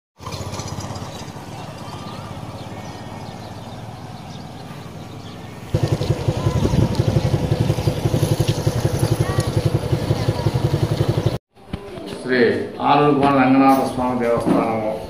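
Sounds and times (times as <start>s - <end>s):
engine puttering: 0.2s - 11.4s.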